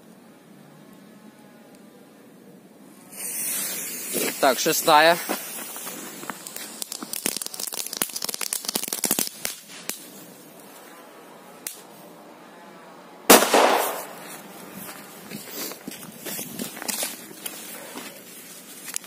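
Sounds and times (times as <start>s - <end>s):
firecracker bang: 13.3s - 14.3s.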